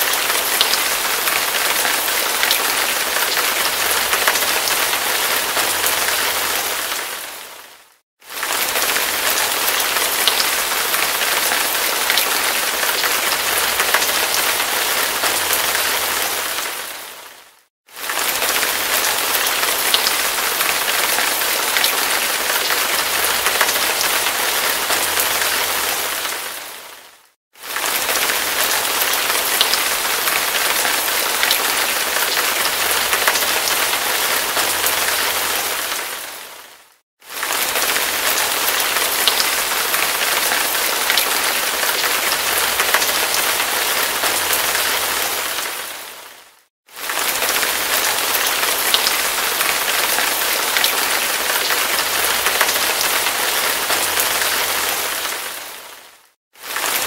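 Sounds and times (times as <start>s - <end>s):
hard rain falling: 0.0s - 57.0s.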